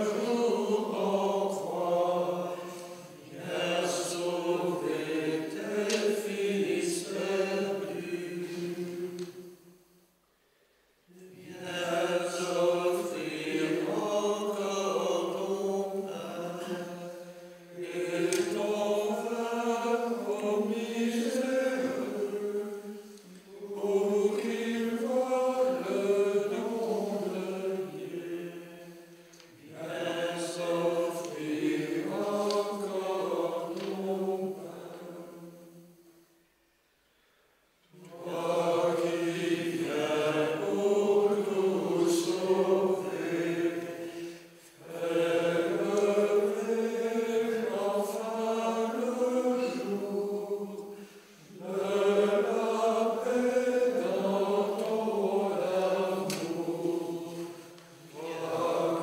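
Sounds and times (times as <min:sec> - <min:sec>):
choir chanting: 0:00.0 - 0:09.6, 0:11.1 - 0:36.1, 0:37.9 - 0:59.0.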